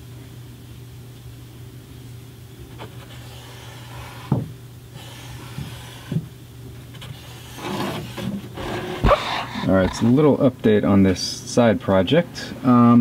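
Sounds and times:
steady low hum: 0.0s - 13.0s
marker and paper scraping: 2.8s - 4.3s, 5.0s - 6.2s, 6.9s - 10.1s.

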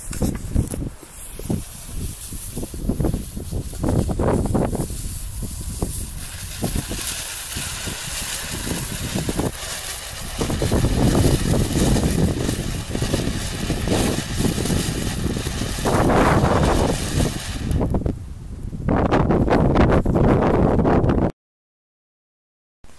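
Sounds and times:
firework fountain hissing: 0.0s - 18.2s.

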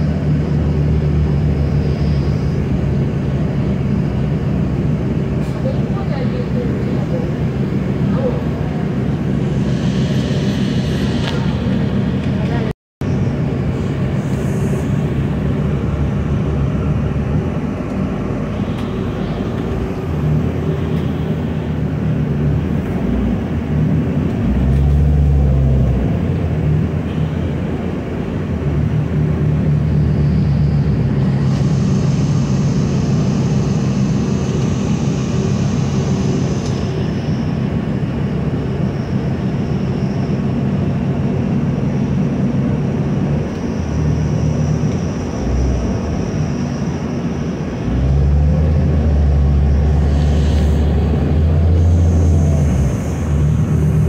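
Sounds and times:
bus engine drone: 0.0s - 54.0s
road noise: 0.0s - 54.0s
thin high whine: 9.2s - 13.4s, 42.8s - 54.0s.

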